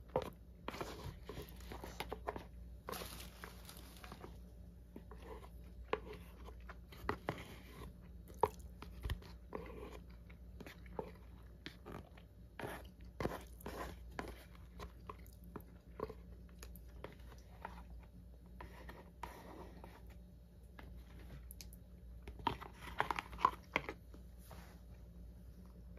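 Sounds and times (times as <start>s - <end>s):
chopsticks scraping plastic bowl: 0.1s - 3.1s, 5.0s - 15.1s.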